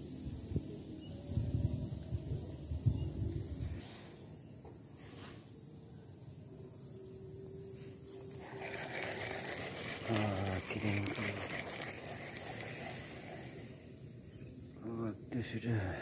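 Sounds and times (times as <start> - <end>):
fishing reel whirring and clicking: 8.3 - 13.7
person speaking: 8.5 - 12.9.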